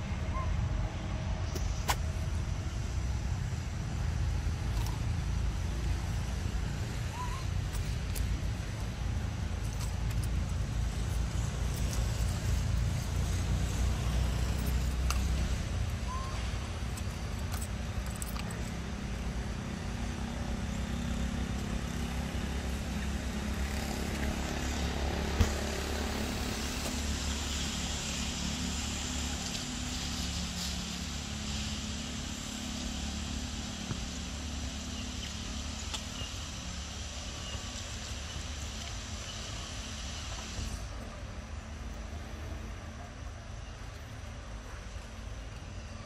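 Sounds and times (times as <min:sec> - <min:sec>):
outdoor rumble and hiss: 0:00.0 - 0:46.0.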